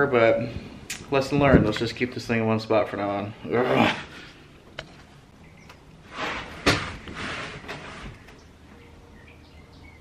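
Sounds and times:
scraping: 0:06.0 - 0:08.5.

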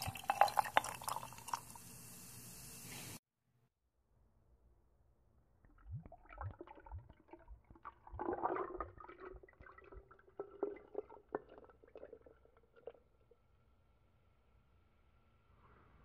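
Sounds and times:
liquid pouring into a glass jar: 0:00.0 - 0:01.9, 0:05.6 - 0:13.4.

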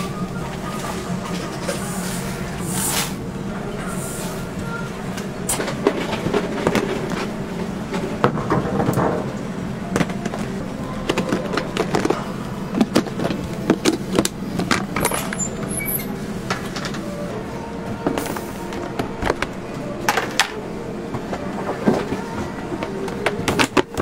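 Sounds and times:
steady background hum: 0:00.0 - 0:24.0
plastic containers and utensils clattering: 0:05.5 - 0:07.3, 0:09.9 - 0:15.5, 0:21.6 - 0:24.0.

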